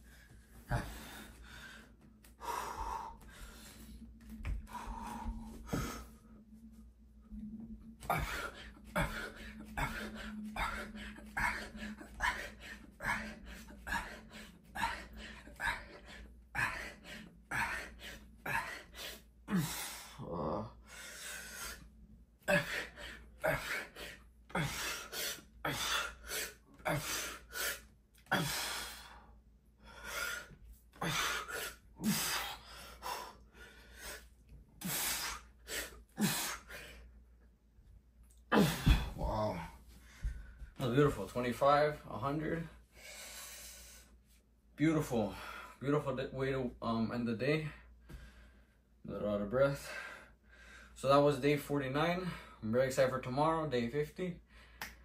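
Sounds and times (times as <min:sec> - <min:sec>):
man breathing hard: 0:00.0 - 0:06.8, 0:08.0 - 0:37.2, 0:38.5 - 0:40.8, 0:42.8 - 0:44.2, 0:47.6 - 0:48.9, 0:49.7 - 0:51.0.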